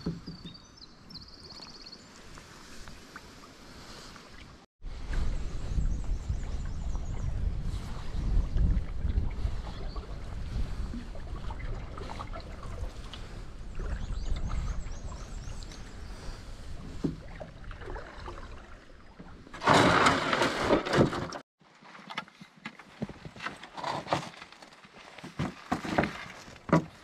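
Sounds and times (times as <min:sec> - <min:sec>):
wind on microphone: 0:04.8 - 0:18.4
canoe hull scraping on gravel: 0:19.5 - 0:27.0.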